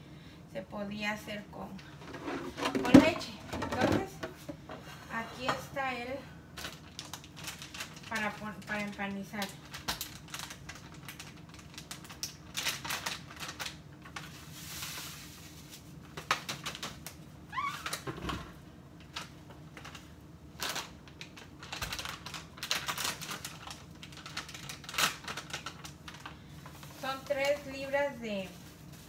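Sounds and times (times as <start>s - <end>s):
plastic bag rustling: 6.6s - 18.1s, 19.0s - 29.0s.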